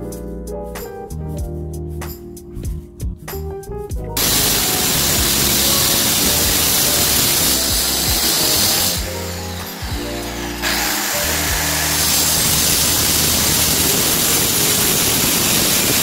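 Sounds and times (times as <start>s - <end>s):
background music: 0.0s - 16.0s
power tool running loudly: 4.2s - 16.0s.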